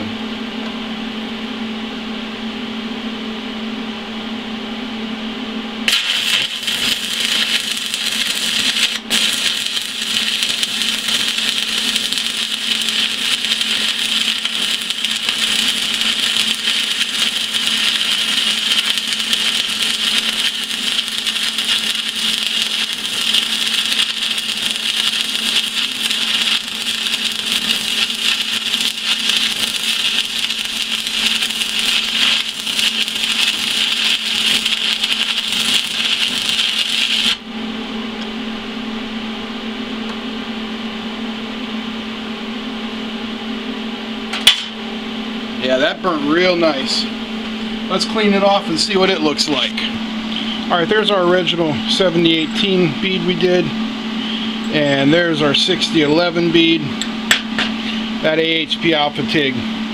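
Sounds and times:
welder low hum: 0.0s - 59.9s
welding arc crackling hiss: 5.8s - 37.4s, 44.3s - 44.8s.

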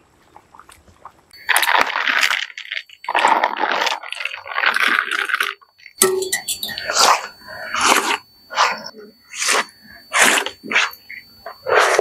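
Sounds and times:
wet leaf rustling and crinkling: 1.4s - 6.0s.

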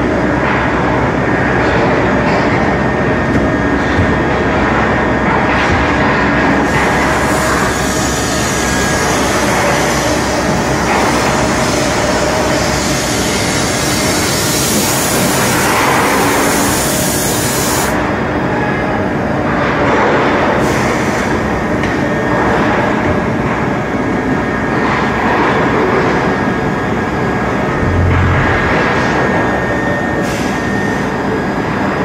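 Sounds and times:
high machine hiss: 6.7s - 18.0s
machine hum: 26.5s - 31.4s.

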